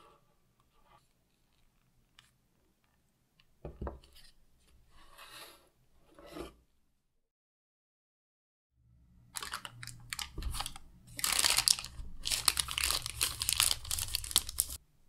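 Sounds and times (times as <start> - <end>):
parchment paper rustling: 9.4 - 14.8.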